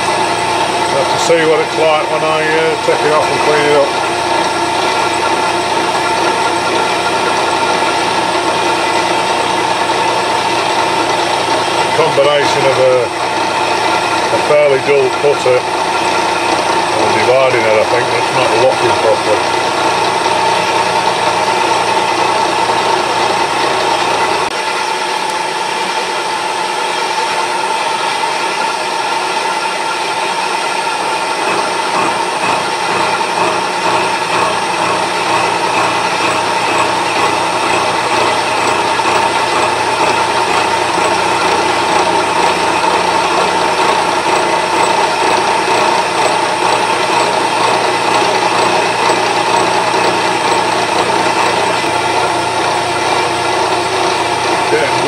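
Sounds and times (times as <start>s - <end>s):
low machine hum: 0.0s - 55.0s
milling machine cutting gear teeth: 30.3s - 55.0s.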